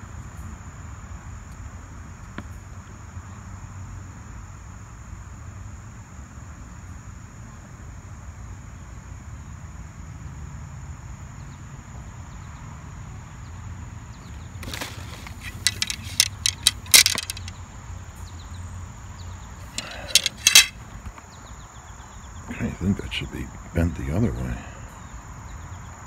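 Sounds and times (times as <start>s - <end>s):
metal poles knocking together: 14.6s - 17.5s, 19.8s - 20.8s
high-pitched insect trill: 14.6s - 17.6s.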